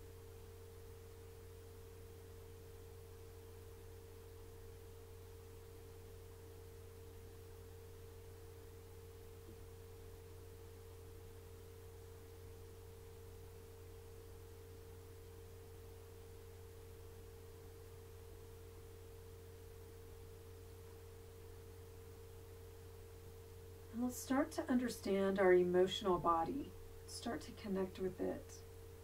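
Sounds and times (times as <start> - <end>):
faint low hum: 0.0 - 29.0.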